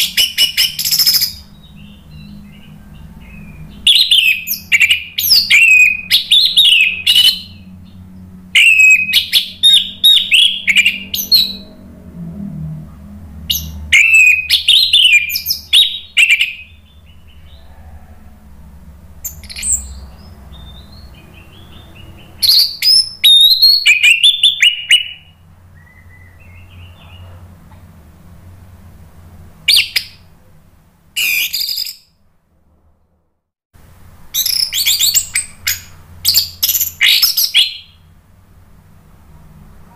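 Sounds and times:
thrush singing: 0:00.0 - 0:12.3.

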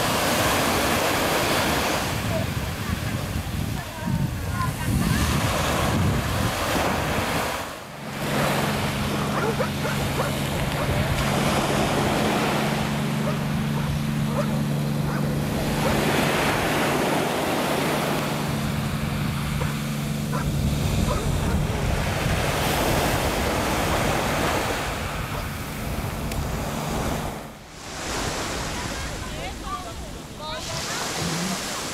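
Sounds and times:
waves washing onto pebbles: 0:00.0 - 0:09.9, 0:26.7 - 0:31.9
wind buffeting microphone: 0:00.0 - 0:31.8.

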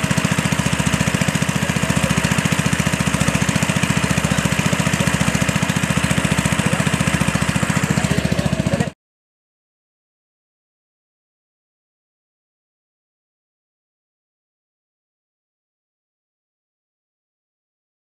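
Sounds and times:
water pump engine running: 0:00.0 - 0:09.0.

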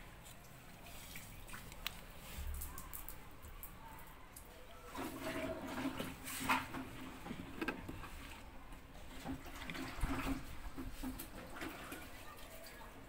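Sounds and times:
water running: 0:00.0 - 0:13.0
scraping plastic drawer housing: 0:05.1 - 0:08.4.

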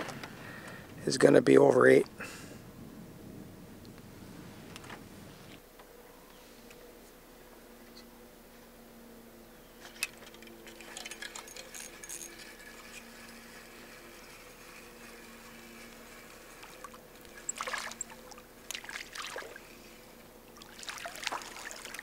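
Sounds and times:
fishing reel clicks and rattles: 0:09.8 - 0:18.8
fish splashing at water surface: 0:17.5 - 0:19.7, 0:20.6 - 0:22.0.

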